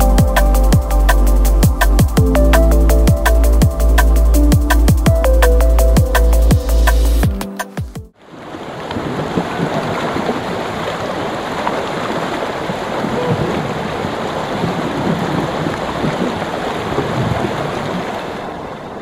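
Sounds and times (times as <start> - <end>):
creek water rushing: 8.2 - 19.0.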